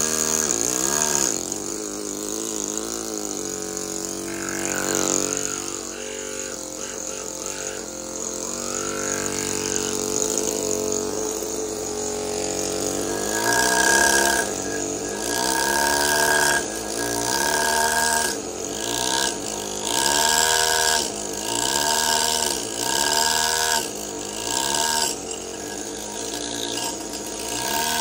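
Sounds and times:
pneumatic hammer carving marble: 0:00.0 - 0:28.0
steady pitched hum: 0:00.4 - 0:18.4.

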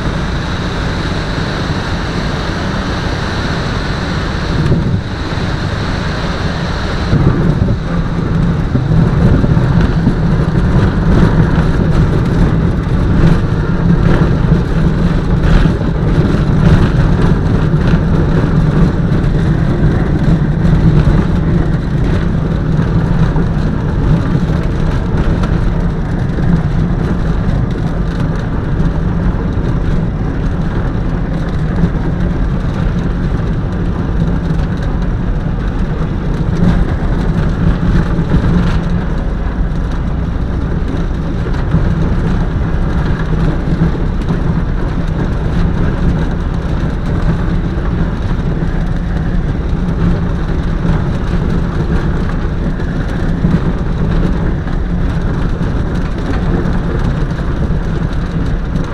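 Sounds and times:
propeller plane engine droning: 0:00.0 - 0:58.9.

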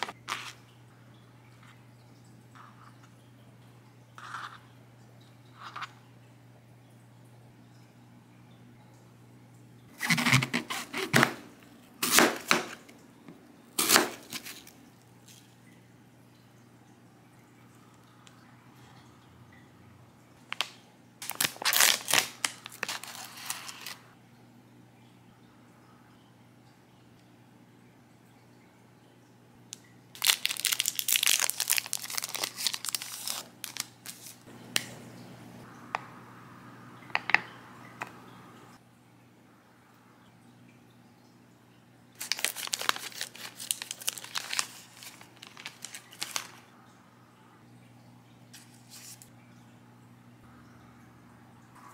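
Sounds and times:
wrapper crinkling and tearing: 0:00.0 - 0:00.5, 0:10.0 - 0:11.2, 0:13.8 - 0:14.8, 0:20.6 - 0:24.1, 0:30.2 - 0:34.5, 0:42.2 - 0:46.7
knife slicing apple on board: 0:12.0 - 0:12.8.

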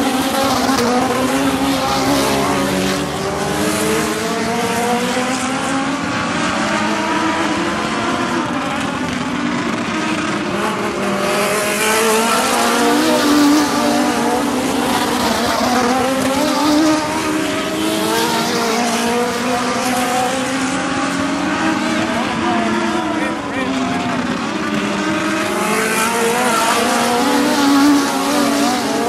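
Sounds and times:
race car engines revving: 0:00.0 - 0:29.0.

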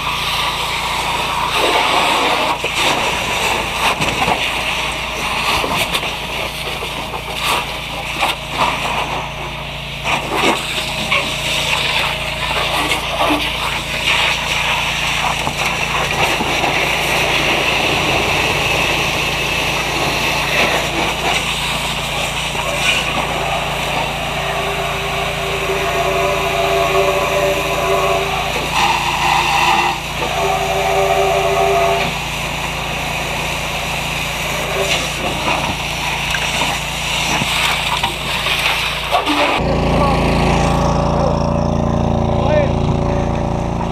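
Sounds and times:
splashing and clatter: 0:00.0 - 0:09.3, 0:10.0 - 0:24.5, 0:32.1 - 0:39.6
fire hose spraying water: 0:00.0 - 0:41.4
steady low hum: 0:01.0 - 0:38.7.

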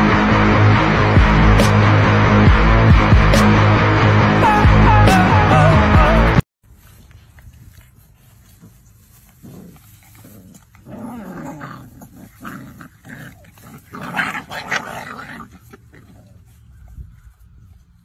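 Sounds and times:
puppies growling and crying: 0:08.6 - 0:16.7.

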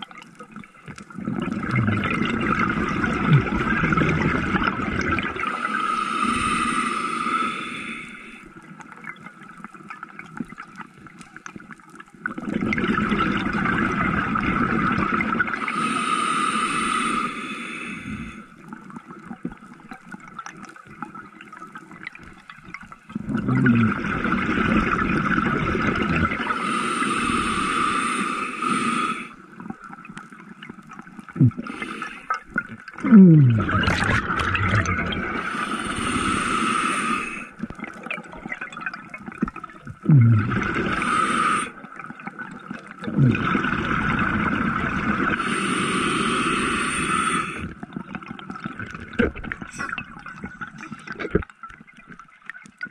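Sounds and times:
diver exhaling bubbling air: 0:01.1 - 0:08.3, 0:23.1 - 0:29.4, 0:31.2 - 0:38.0, 0:39.5 - 0:42.0, 0:42.9 - 0:47.8
short gurgles: 0:01.2 - 0:05.4, 0:23.2 - 0:26.5, 0:32.6 - 0:35.4, 0:39.9 - 0:41.1, 0:43.0 - 0:44.5
diver inhaling through regulator: 0:05.5 - 0:08.5, 0:15.6 - 0:18.5, 0:26.2 - 0:29.4, 0:31.4 - 0:32.4, 0:33.0 - 0:37.6, 0:40.0 - 0:41.9, 0:45.3 - 0:47.8.

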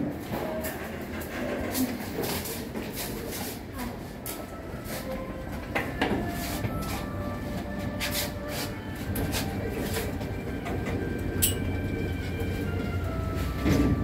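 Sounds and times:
elevator doors clicking and rattling: 0:00.0 - 0:03.1, 0:08.9 - 0:14.0
elevator hum: 0:04.0 - 0:14.0.

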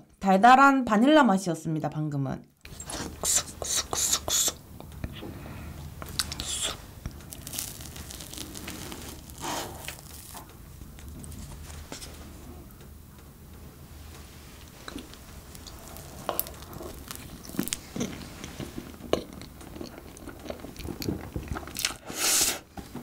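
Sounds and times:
low hum: 0:04.6 - 0:21.2
chewing: 0:06.0 - 0:12.2, 0:14.6 - 0:22.0.

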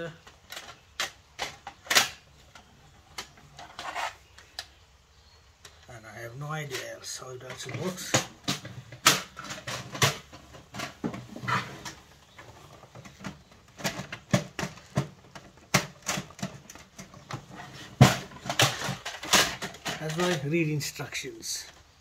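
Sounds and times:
plastic printer parts clicking: 0:00.0 - 0:04.8.

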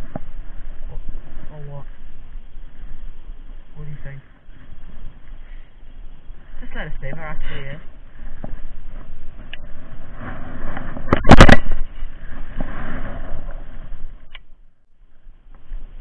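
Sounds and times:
jacket rubbing against microphone: 0:08.8 - 0:11.1.

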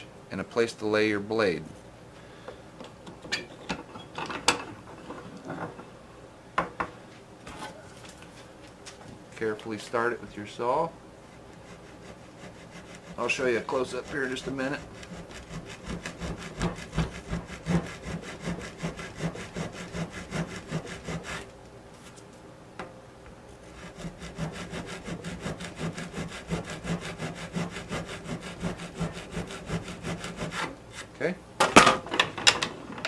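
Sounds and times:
handsaw cutting a stick: 0:11.6 - 0:21.5, 0:23.7 - 0:30.7.

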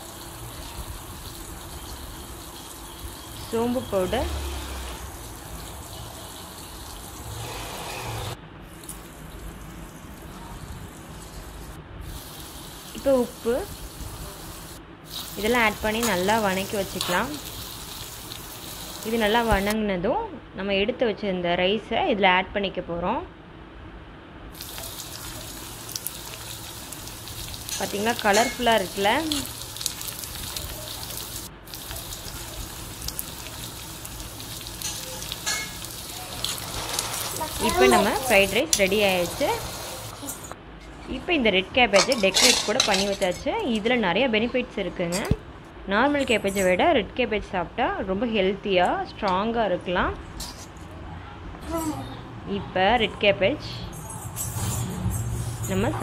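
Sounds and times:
vegetables sizzling in oil: 0:00.0 - 0:19.8, 0:24.5 - 0:40.6.

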